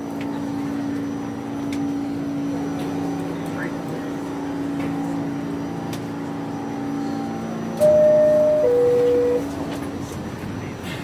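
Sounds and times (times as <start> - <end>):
train hum: 0.0 - 11.0
two-tone door chime: 7.8 - 9.5.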